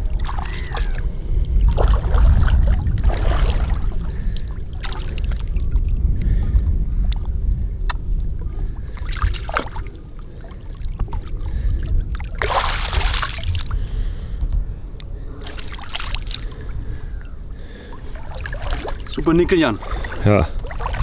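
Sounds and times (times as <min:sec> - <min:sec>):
steady low rumble: 0:00.0 - 0:21.0
water splashing and pouring: 0:01.7 - 0:04.0, 0:12.2 - 0:13.7, 0:18.1 - 0:21.0.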